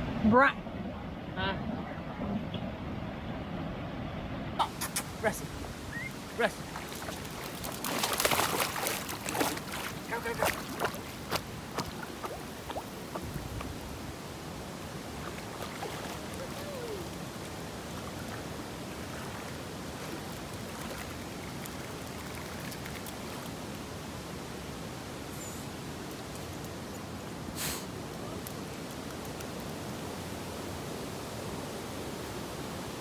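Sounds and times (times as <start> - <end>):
creek water running over rock: 4.7 - 31.5
dog splashing through water: 6.6 - 13.3, 15.2 - 16.7.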